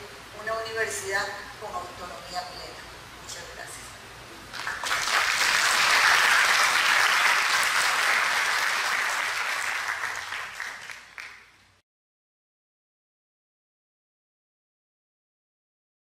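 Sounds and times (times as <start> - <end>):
audience applauding: 4.5 - 11.5.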